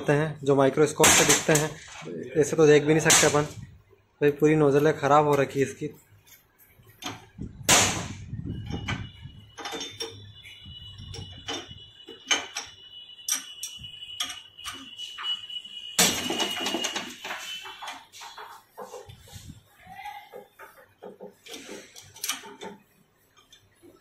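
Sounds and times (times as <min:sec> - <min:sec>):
metallic clicks and knocks: 0:09.6 - 0:10.3, 0:11.0 - 0:14.9, 0:20.3 - 0:24.0.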